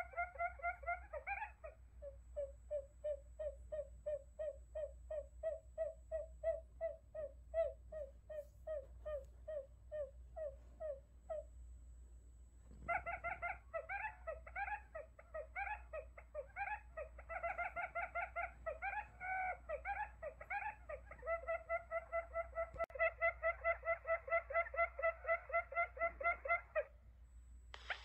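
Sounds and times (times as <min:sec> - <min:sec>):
recorded quail chirps: 0:00.0 - 0:11.7, 0:12.6 - 0:27.0, 0:27.7 - 0:28.0.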